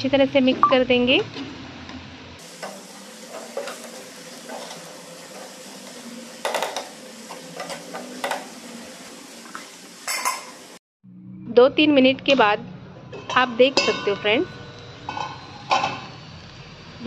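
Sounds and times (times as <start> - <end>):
low sizzle of frying: 0.0 - 10.8, 14.6 - 17.0
spoon scraping a pan: 2.6 - 8.6.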